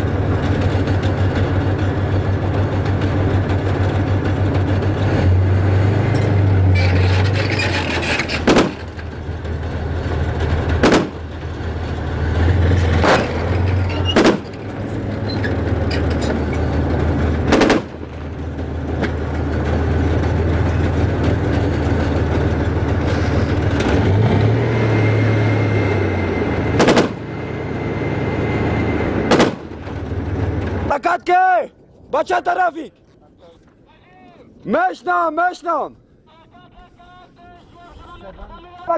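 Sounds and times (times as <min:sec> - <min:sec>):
tank diesel engine running: 0:00.0 - 0:31.3
sharp gunshots: 0:08.4 - 0:08.9, 0:10.8 - 0:11.2, 0:14.1 - 0:14.4, 0:17.5 - 0:18.0, 0:26.8 - 0:27.2, 0:29.3 - 0:29.8.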